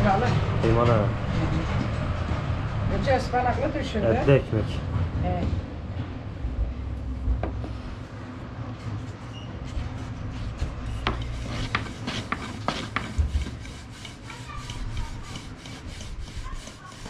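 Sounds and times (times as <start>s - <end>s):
dough rubbing on wooden board: 8.8s - 17.0s.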